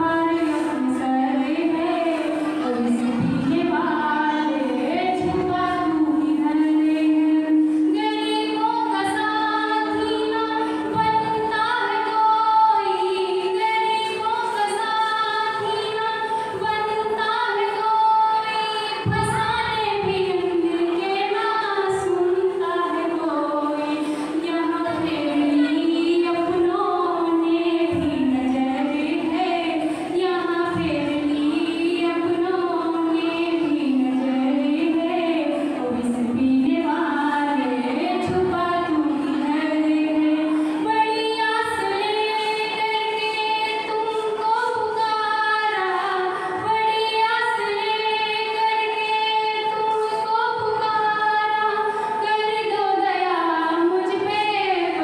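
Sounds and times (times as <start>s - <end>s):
woman singing: 0.0s - 55.0s.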